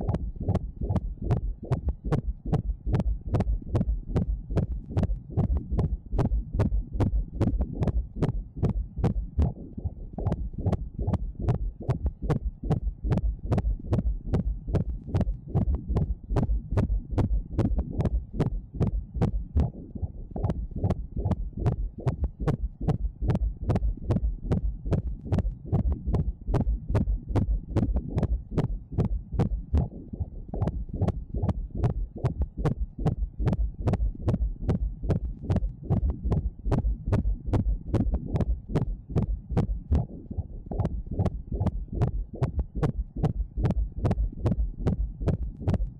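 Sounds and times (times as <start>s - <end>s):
fast fetal heartbeat: 0.0s - 45.9s.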